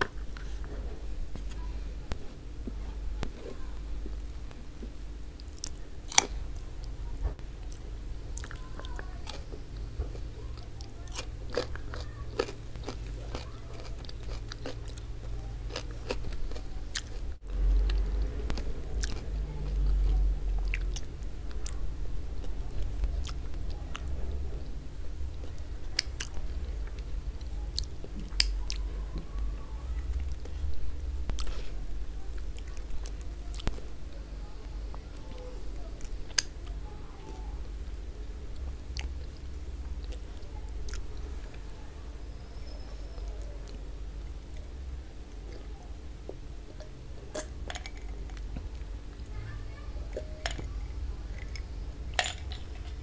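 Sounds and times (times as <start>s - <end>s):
wet chewing sounds: 7.6s - 24.4s, 25.3s - 29.4s, 30.1s - 34.0s, 34.6s - 41.6s.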